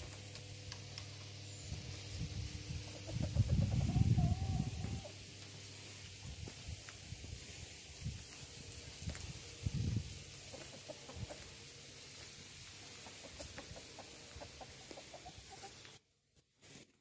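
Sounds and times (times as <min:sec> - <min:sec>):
steady outdoor hiss: 0:00.0 - 0:17.0
rooster clucking: 0:02.8 - 0:05.2, 0:10.3 - 0:12.0, 0:12.8 - 0:15.9.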